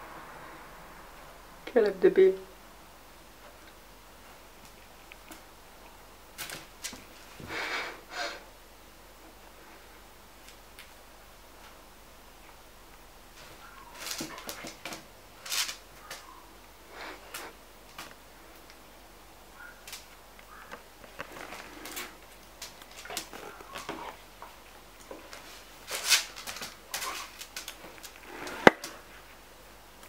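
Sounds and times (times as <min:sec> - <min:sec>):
dog scuffing on stone floor: 0:13.4 - 0:16.3, 0:21.1 - 0:29.2.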